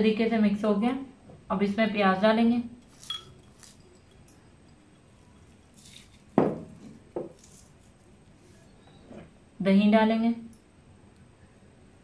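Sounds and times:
dishware clinking: 2.8 - 6.8
dishes being handled: 2.8 - 7.8.

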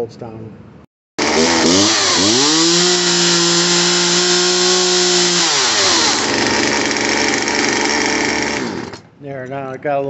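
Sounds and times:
chainsaw engine revving: 1.2 - 9.1.

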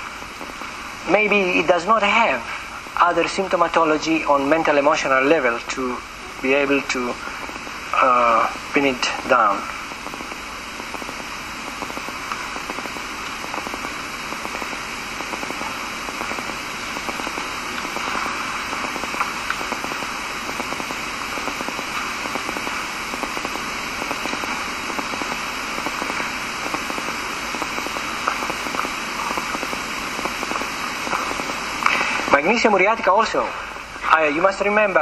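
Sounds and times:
faint crackle: 0.0 - 32.4
recording hiss: 0.0 - 35.0.

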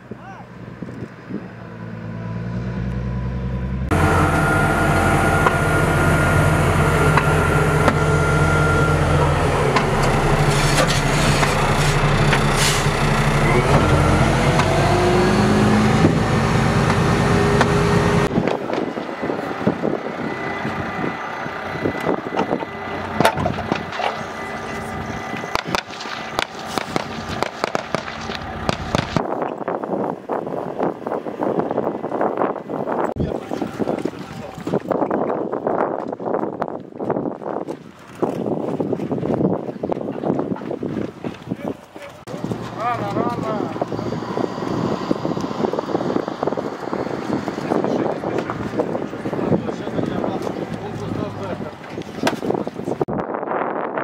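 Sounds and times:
armoured vehicle engine running: 0.0 - 29.3, 40.7 - 53.1.

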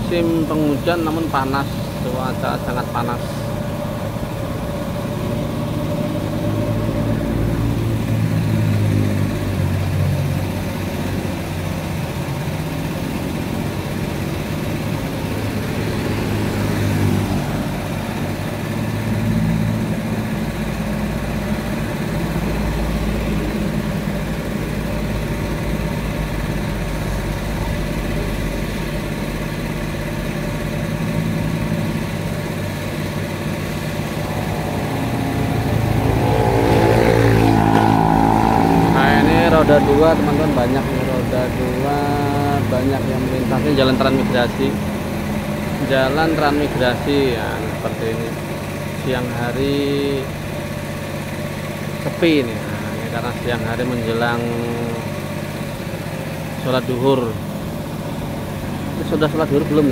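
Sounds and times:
passing traffic: 0.0 - 59.9
motor scooter passing: 30.9 - 49.0
car passing close by: 33.6 - 41.8.

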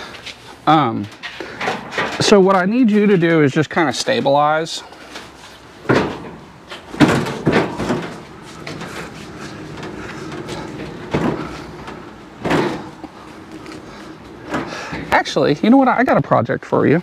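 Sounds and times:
knocks and clunks: 5.8 - 13.3
dolly wheels rumbling on concrete: 6.2 - 15.8.

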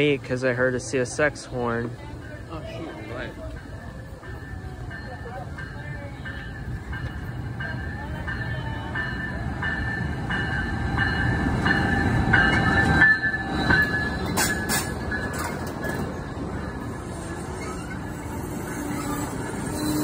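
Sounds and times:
train rumbling past: 0.0 - 20.0
sharp clicks of train cars: 12.5 - 16.2
high squeal: 17.0 - 20.0.

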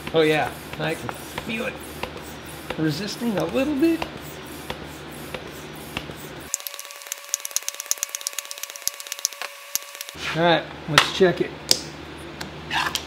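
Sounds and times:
hand tire pump hissing: 0.0 - 10.2
fast light clicks: 6.5 - 10.2.

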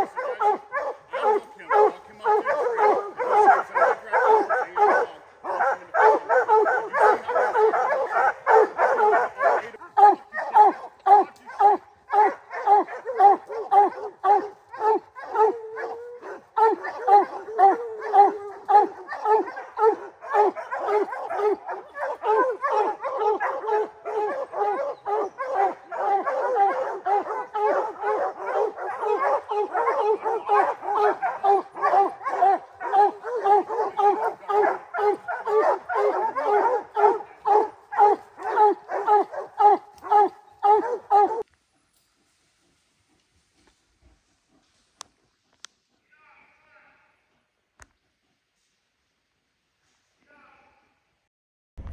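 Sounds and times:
hound barking: 0.0 - 41.5.

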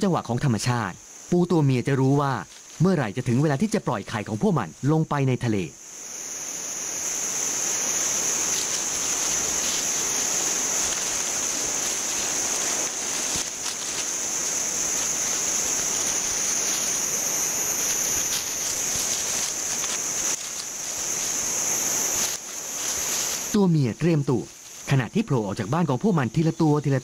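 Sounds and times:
even hiss: 0.0 - 27.0
high-pitched insect drone: 0.0 - 27.0
faint rustles: 2.0 - 4.4, 5.9 - 25.0.

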